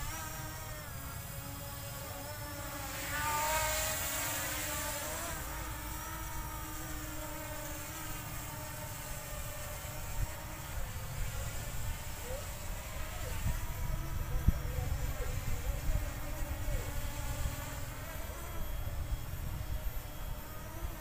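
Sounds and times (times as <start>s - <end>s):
drone propeller motors whining: 0.0s - 21.0s
wind rumble on microphone: 12.7s - 20.0s.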